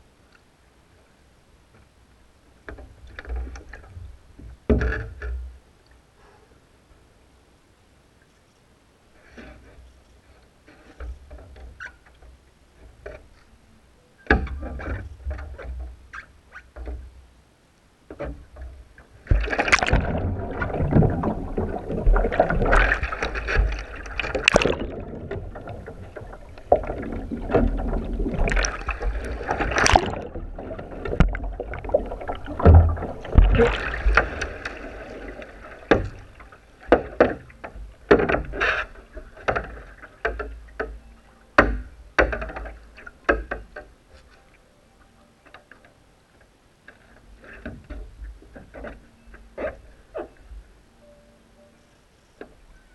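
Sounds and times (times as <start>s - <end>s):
muffled underwater rushing and bubbling: 18.5s - 40.0s
water churning and splashing: 18.6s - 40.9s
short sharp splashes and drips: 19.3s - 25.0s, 26.8s - 36.3s.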